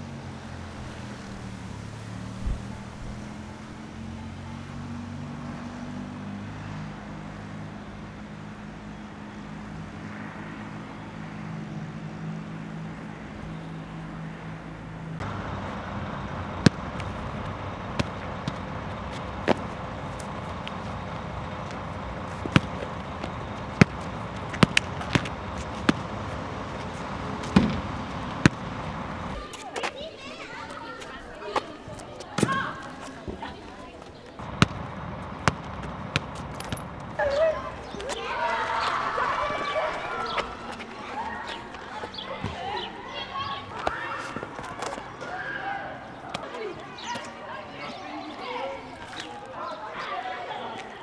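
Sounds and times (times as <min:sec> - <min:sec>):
rubber ball bouncing on concrete: 0:22.4 - 0:22.8, 0:23.8 - 0:26.0, 0:35.4 - 0:37.2.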